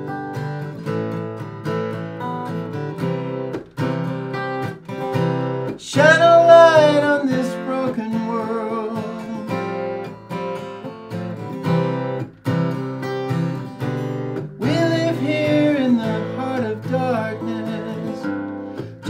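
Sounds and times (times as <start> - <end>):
acoustic guitar strumming: 0.0 - 19.0.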